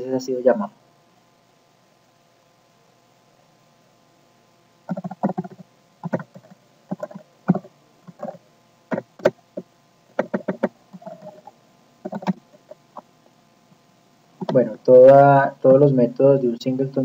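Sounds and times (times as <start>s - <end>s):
keyboard typing: 4.9s - 13.1s.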